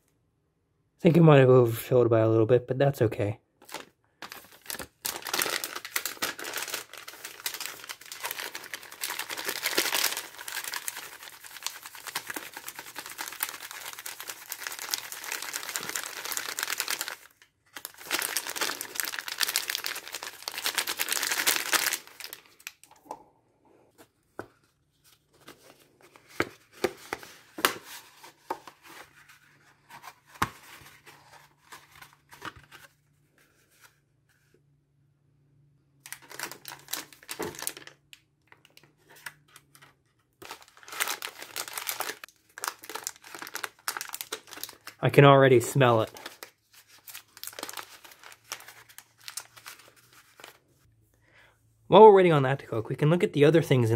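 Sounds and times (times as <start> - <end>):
plastic packaging crinkling: 3.6 - 23.0, 36.0 - 50.8.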